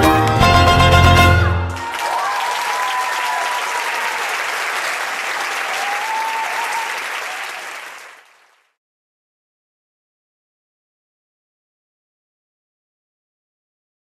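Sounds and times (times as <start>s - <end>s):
audience applauding: 1.5s - 8.8s.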